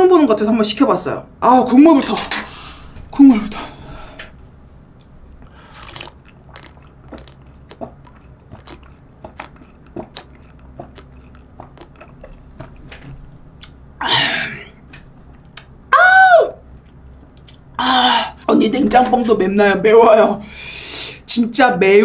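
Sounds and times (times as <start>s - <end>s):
person sipping and gulping: 5.0s - 13.0s.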